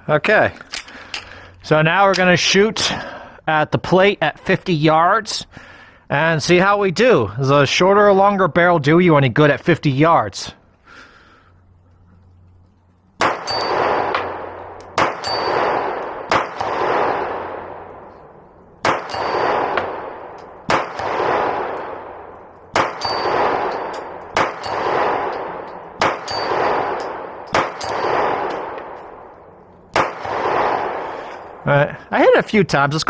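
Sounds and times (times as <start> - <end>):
steel plate target ringing: 13.2 - 14.2, 15.0 - 16.6, 18.9 - 19.8, 22.8 - 25.0, 26.0 - 27.0
pistol shots: 13.2 - 31.6.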